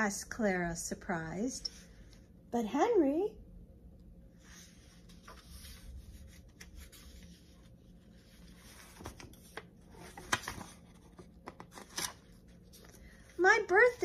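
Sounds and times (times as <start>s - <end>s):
paper rustling: 4.4s - 14.0s.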